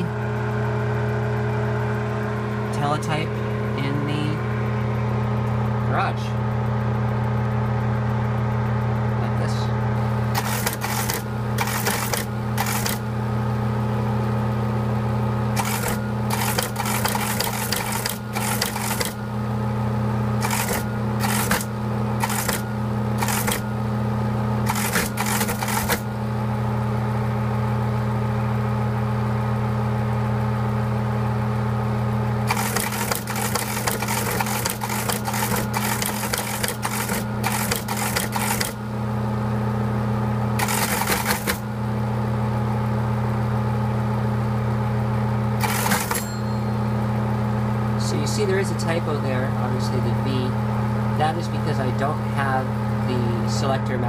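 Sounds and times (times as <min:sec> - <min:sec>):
motor hum: 0:00.0 - 0:54.0
teleprinter clattering: 0:10.4 - 0:13.1, 0:15.6 - 0:19.2, 0:20.4 - 0:23.7, 0:24.6 - 0:26.1, 0:32.5 - 0:38.8, 0:40.6 - 0:41.6, 0:45.6 - 0:46.3.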